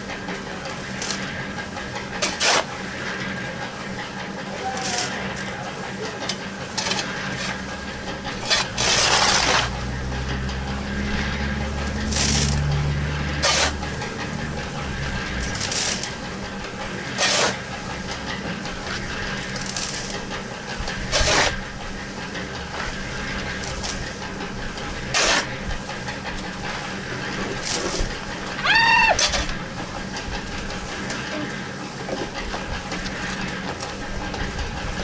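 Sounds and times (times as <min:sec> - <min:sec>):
shovel scraping sand: 0:02.2 - 0:02.7, 0:08.4 - 0:09.8, 0:13.4 - 0:13.8, 0:15.4 - 0:16.1, 0:17.1 - 0:17.6, 0:21.1 - 0:21.6, 0:25.1 - 0:25.5.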